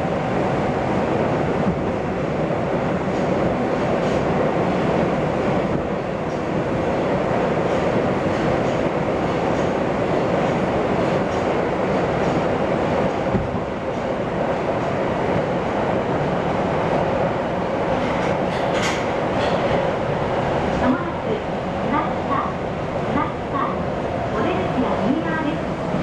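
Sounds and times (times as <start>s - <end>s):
train wheels rumbling: 0.0s - 26.0s
wheels clicking over rail joints: 18.0s - 19.8s.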